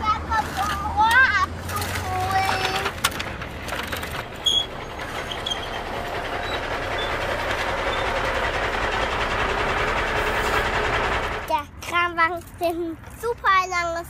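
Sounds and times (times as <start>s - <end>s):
toy truck wheels rolling on asphalt: 0.0s - 14.0s.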